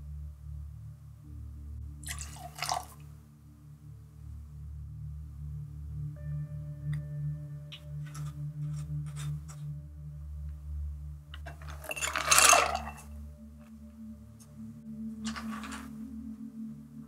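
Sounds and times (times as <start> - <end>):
soft ambient background music: 0.0 - 17.0
liquid pouring into glass: 2.0 - 2.9.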